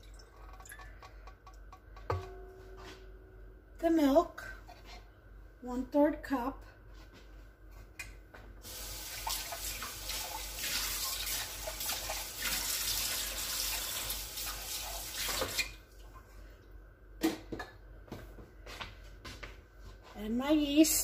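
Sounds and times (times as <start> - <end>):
water running from tap: 8.6 - 15.7.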